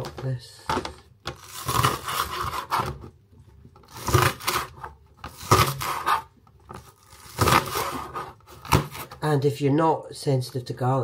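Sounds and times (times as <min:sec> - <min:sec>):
knife chopping on plastic board: 0:03.9 - 0:06.2.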